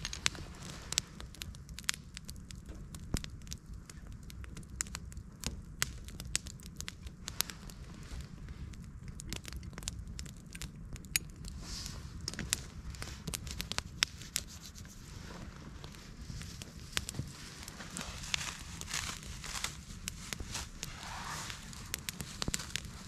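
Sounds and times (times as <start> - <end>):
campfire crackling and popping: 0.0 - 23.0
plastic bag crinkling: 16.9 - 23.0.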